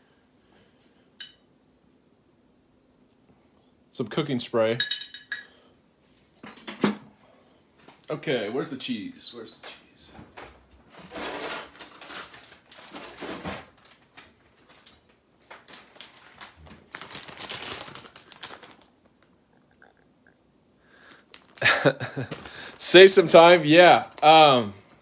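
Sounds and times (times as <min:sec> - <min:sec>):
rustling: 0:10.4 - 0:19.4.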